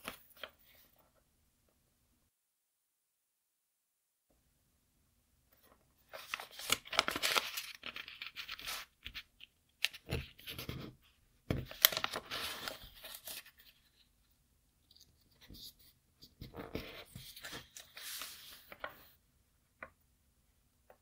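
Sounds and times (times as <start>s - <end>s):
paper fold crackles: 5.6s - 10.8s, 11.6s - 14.1s, 16.4s - 19.2s
paper rustling and crinkling: 5.6s - 14.1s, 14.9s - 19.2s.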